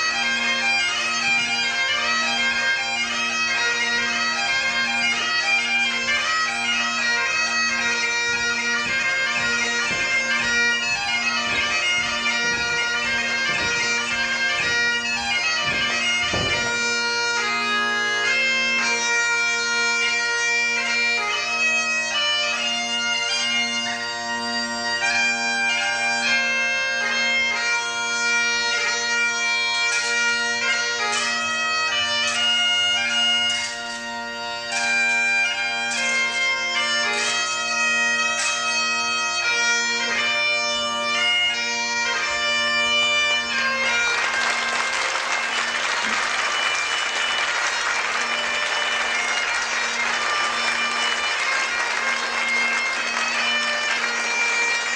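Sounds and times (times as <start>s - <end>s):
bagpipe playing a dance tune: 0.0s - 54.9s
dull thuds: 8.8s - 17.1s.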